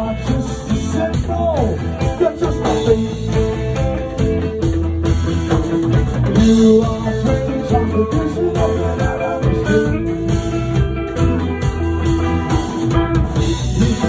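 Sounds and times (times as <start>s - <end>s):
punk rock band playing: 0.0s - 14.0s.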